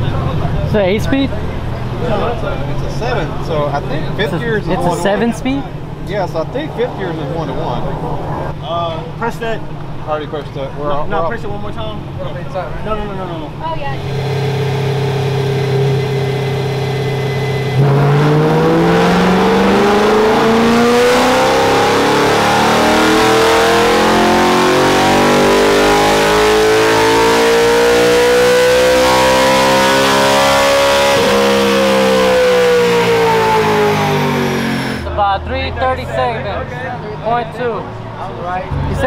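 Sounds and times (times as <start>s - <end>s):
engine revving at full throttle: 13.9s - 35.1s.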